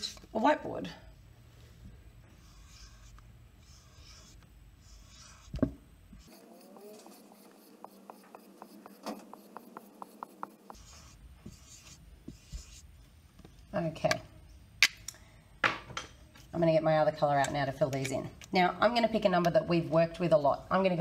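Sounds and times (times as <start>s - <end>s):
marker scratching on whiteboard: 2.3s - 12.9s.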